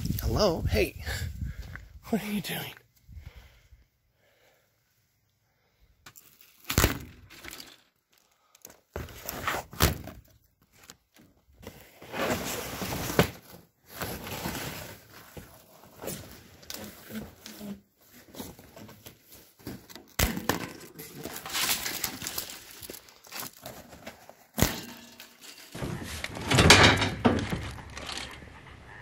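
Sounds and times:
rustling and scraping: 0:08.9 - 0:09.8, 0:10.7 - 0:29.0.

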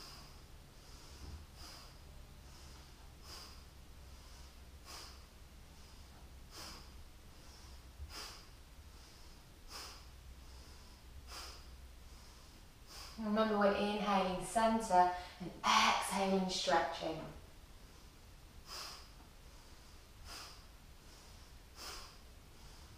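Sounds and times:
woman breathing sharply through nose: 0:00.0 - 0:13.2, 0:17.8 - 0:22.9.

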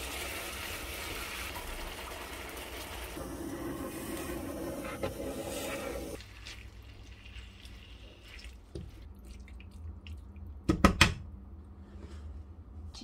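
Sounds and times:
water running from a tap: 0:00.0 - 0:09.0.

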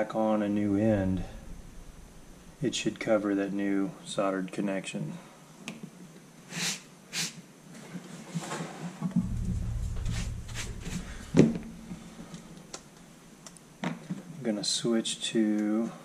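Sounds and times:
low rumble of things moved: 0:00.5 - 0:03.4, 0:09.0 - 0:13.2.

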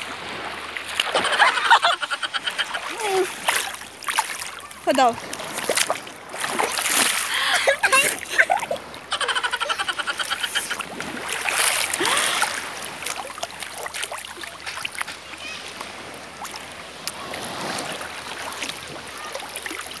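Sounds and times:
small splashes: 0:00.0 - 0:09.6, 0:10.4 - 0:20.0
seawater sloshing around wading person: 0:00.0 - 0:20.0.

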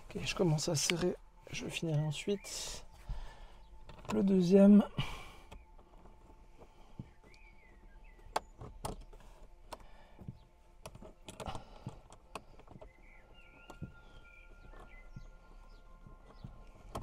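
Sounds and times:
tools clicking and knocking on car door: 0:03.8 - 0:04.4, 0:05.4 - 0:17.0.

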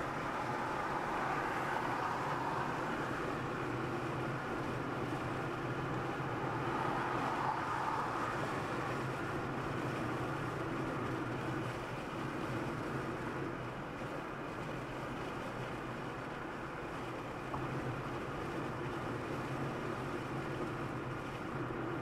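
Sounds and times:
car road noise: 0:00.0 - 0:22.0
low engine hum: 0:00.0 - 0:22.0.

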